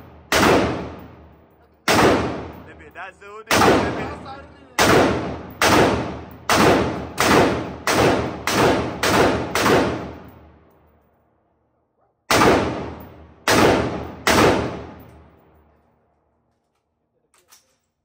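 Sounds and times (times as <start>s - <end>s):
gunshots with echo: 0.0s - 1.3s, 1.9s - 2.8s, 3.5s - 10.3s, 12.3s - 15.3s.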